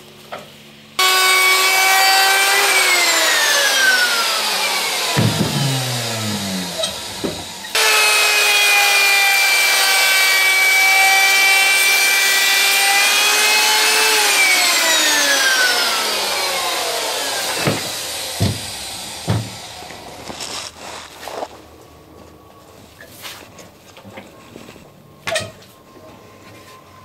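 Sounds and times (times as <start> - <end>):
electric router running: 1.0 - 20.4
knocks: 5.2 - 5.7, 17.6 - 18.7.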